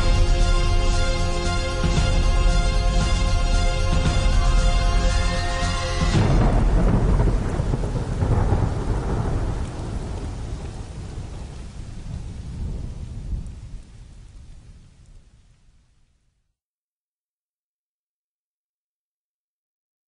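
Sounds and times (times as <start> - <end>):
music: 0.0 - 7.8
thunder rumbling: 0.0 - 15.9
rain-like hiss: 0.0 - 16.6.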